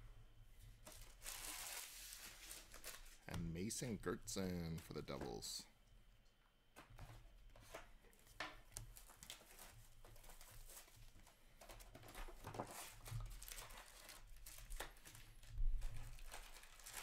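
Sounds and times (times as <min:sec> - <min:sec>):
trading cards rustling: 0:00.8 - 0:05.6.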